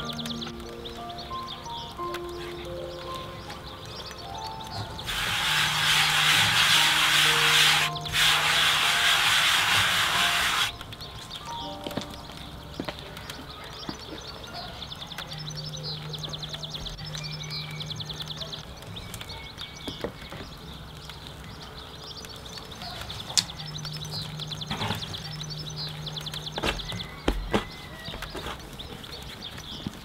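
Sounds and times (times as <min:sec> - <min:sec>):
animal trilling call: 0:05.0 - 0:10.8.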